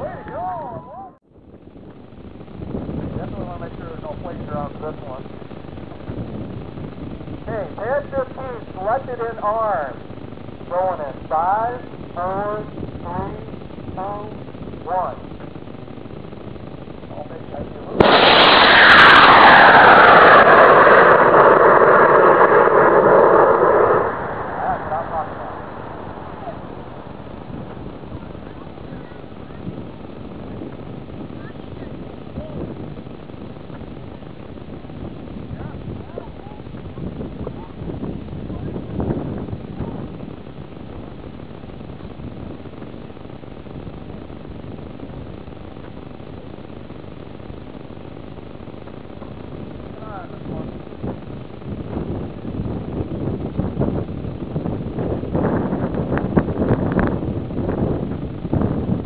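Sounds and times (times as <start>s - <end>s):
steady microphone hiss: 0.0s - 20.5s, 23.3s - 59.0s
low fluttering rumble: 0.0s - 59.0s
sharp crackles: 12.9s - 31.9s
rocket motor roaring: 15.9s - 30.2s.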